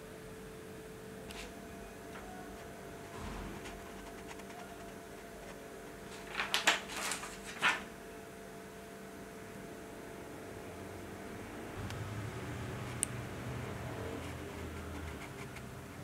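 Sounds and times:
low room hum: 0:00.0 - 0:16.0
paper page rustling: 0:03.6 - 0:07.9.

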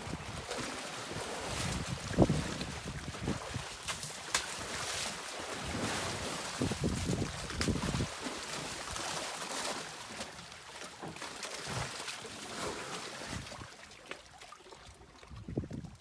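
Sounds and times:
wind on microphone: 0:00.0 - 0:00.5, 0:01.1 - 0:03.8, 0:05.6 - 0:08.2, 0:15.2 - 0:16.0
water sloshing and splashing: 0:00.0 - 0:16.0.

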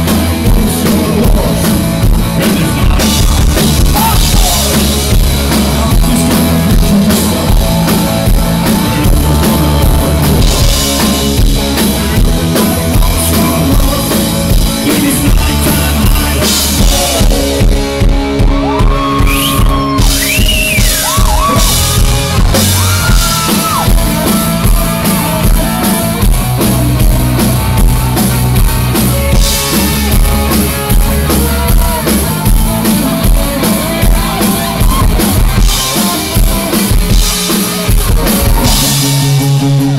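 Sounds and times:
live rock band playing: 0:00.0 - 0:39.9.

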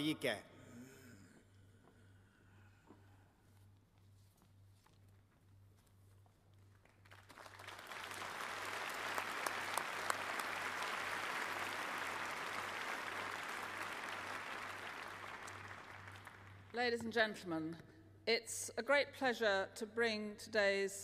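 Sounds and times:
large audience applauding: 0:06.7 - 0:16.7.

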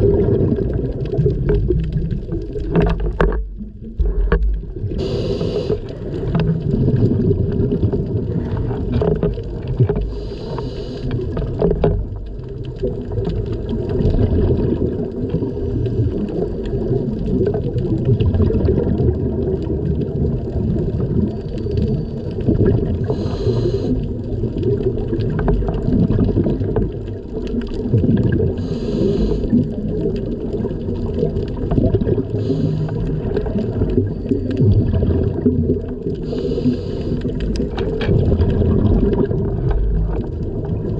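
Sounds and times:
underwater exhaled air bubbling: 0:00.0 - 0:40.9
regulator hiss: 0:05.0 - 0:06.0, 0:10.2 - 0:11.1, 0:23.1 - 0:24.0, 0:28.6 - 0:29.6, 0:32.4 - 0:33.0, 0:36.3 - 0:37.2.

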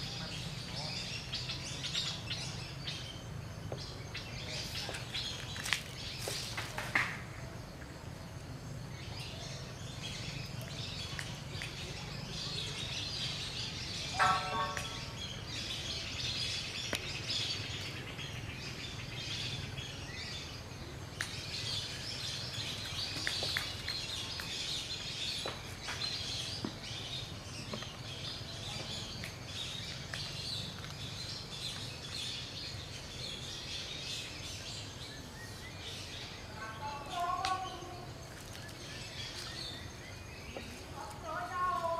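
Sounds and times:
birds chirping: 0:00.0 - 0:41.9
short pitched bird call: 0:14.1 - 0:15.2.

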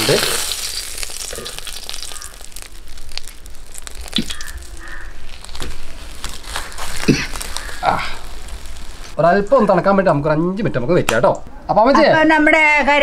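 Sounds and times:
dry leaf parcels crackling: 0:00.0 - 0:09.9.

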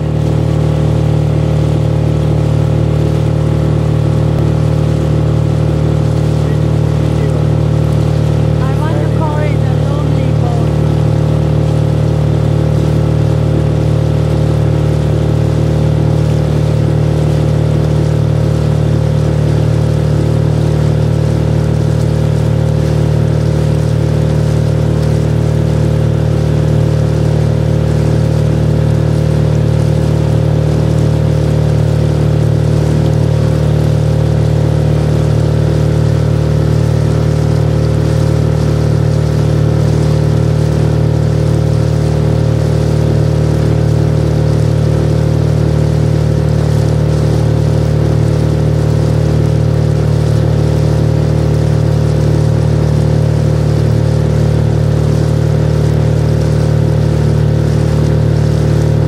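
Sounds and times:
outboard motor running: 0:00.0 - 0:59.0.

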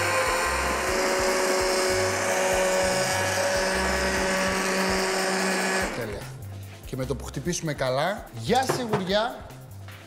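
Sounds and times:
stick blender running: 0:00.0 - 0:06.2.

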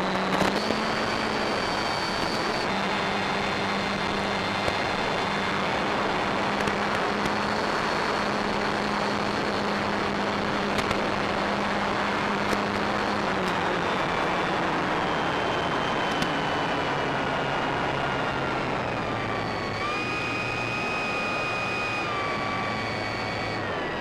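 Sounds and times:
high whine: 0:00.0 - 0:24.0
motor drone: 0:00.0 - 0:24.0
wind and propeller rush: 0:00.0 - 0:24.0.

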